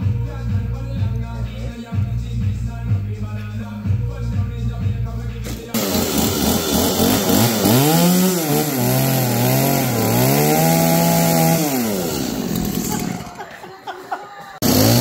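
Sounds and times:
chainsaw revving: 5.4 - 13.5, 14.6 - 15.0.

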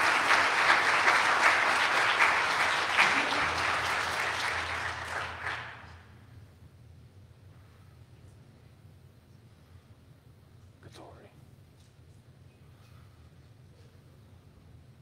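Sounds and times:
congregation applauding: 0.0 - 6.2.

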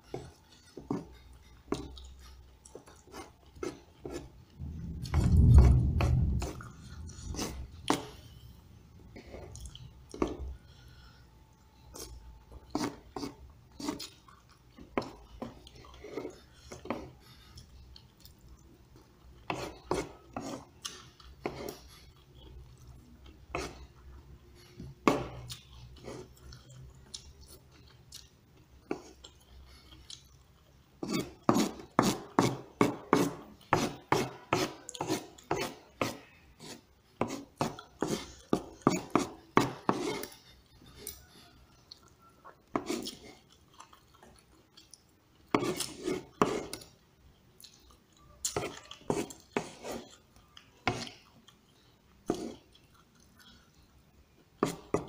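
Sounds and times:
spoon and fork scraping food: 6.1 - 8.2, 11.9 - 14.3, 19.4 - 22.2, 31.0 - 41.4, 42.6 - 43.6, 45.5 - 46.9, 48.4 - 51.2.

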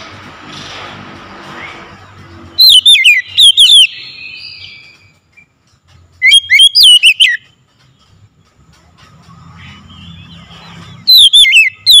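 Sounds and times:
bird whistling calls: 2.5 - 5.5, 6.2 - 7.6, 9.6 - 12.0.

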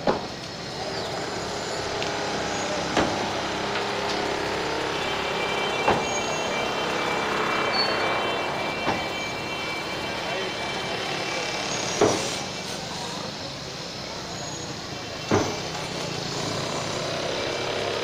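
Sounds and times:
crowd noise: 0.0 - 18.0
street traffic: 0.0 - 18.0
hammer blows on concrete: 11.8 - 12.6.

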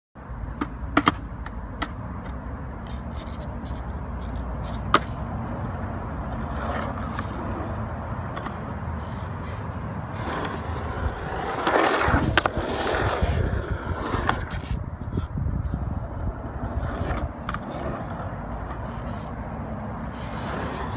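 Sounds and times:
skateboard wheels rolling on concrete: 0.2 - 20.9
skateboard sharp clacks: 0.5 - 5.3, 6.3 - 15.2.

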